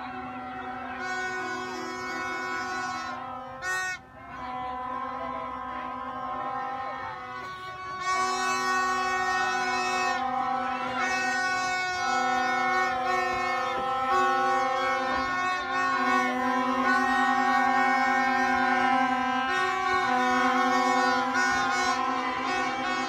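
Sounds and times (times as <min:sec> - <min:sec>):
plastic fan horns blown: 0:00.0 - 0:23.0.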